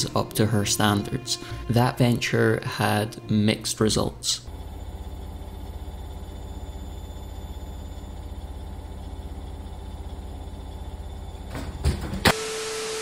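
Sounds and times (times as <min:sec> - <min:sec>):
low hum with fast flutter: 0:04.5 - 0:12.2.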